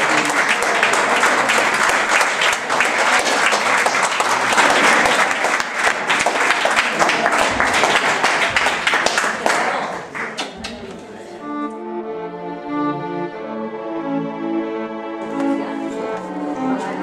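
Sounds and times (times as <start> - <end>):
audience applauding: 0.0 - 10.8.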